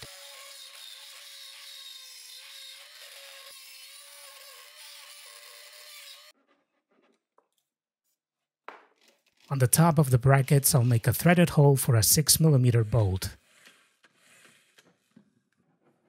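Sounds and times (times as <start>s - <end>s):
rotary tool grinding metal: 0.0s - 6.5s, 12.7s - 15.2s.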